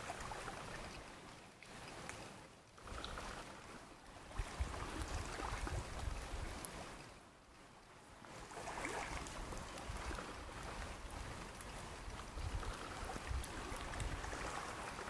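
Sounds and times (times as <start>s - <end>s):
water washing on shore: 0.0s - 15.0s
wind rumble on microphone: 4.2s - 6.9s, 8.7s - 15.0s.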